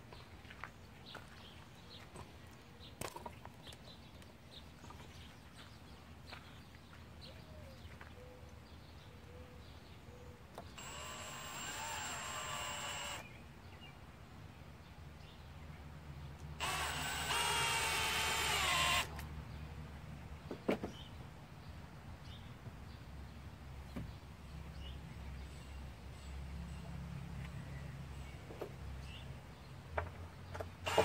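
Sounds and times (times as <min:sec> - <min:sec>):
cordless drill driving screw: 0:10.6 - 0:13.3, 0:16.6 - 0:19.2.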